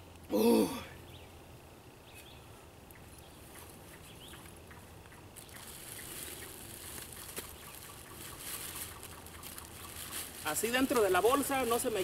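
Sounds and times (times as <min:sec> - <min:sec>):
plastic bag rustling: 0:05.4 - 0:12.0.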